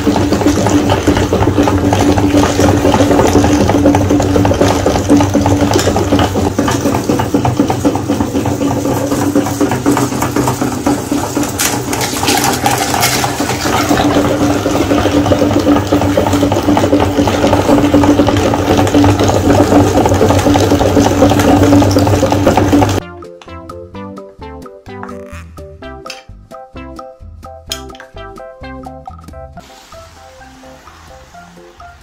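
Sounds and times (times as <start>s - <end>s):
meat grinder turning: 0.0s - 23.0s.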